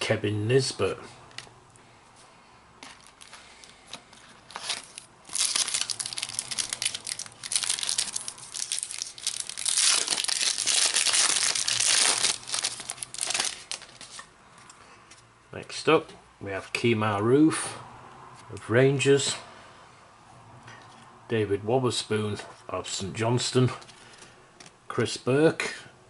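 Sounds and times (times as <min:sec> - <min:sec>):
plastic wrapper crinkling and tearing: 0:03.0 - 0:14.3.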